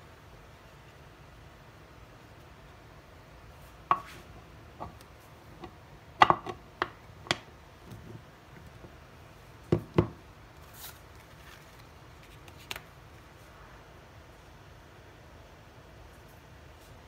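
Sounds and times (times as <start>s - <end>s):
paper rustle: 10.6s - 13.5s.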